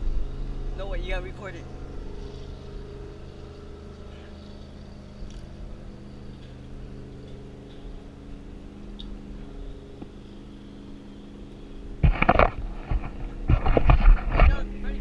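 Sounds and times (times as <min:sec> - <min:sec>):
jet ski engine idling: 0:00.0 - 0:15.0.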